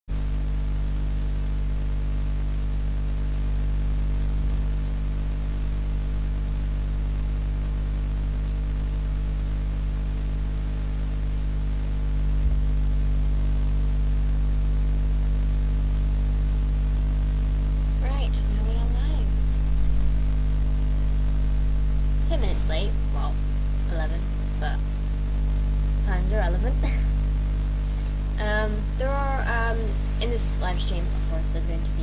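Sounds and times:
electrical mains hum: 0.1s - 32.0s.

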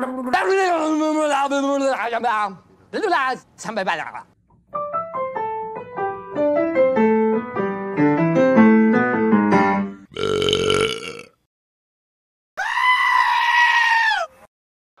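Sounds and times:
piano melody: 4.6s - 10.0s
burp-like vocal sound effect: 10.0s - 11.5s.

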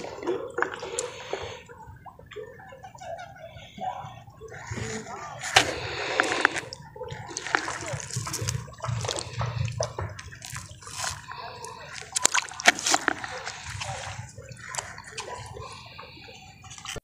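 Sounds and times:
lake water splashing at shore: 4.6s - 17.0s.

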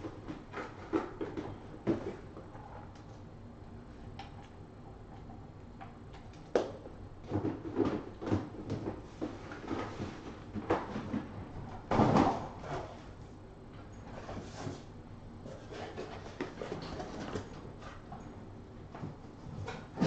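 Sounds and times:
bumps and scrapes of handling: 14.0s - 18.2s.

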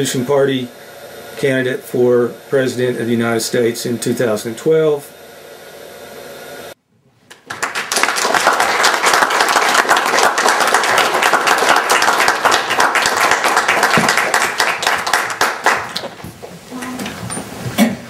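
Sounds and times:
audience clapping: 7.3s - 16.5s.

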